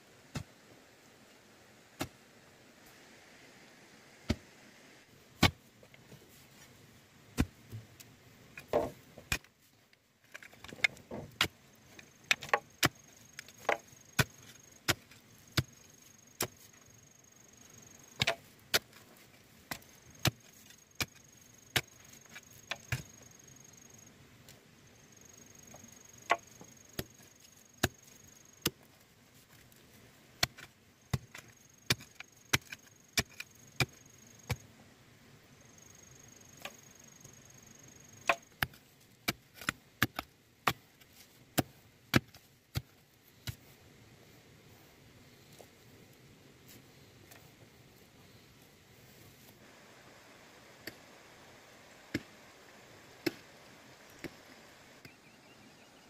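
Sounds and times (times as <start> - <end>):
bamboo being chopped: 18.2 - 18.9.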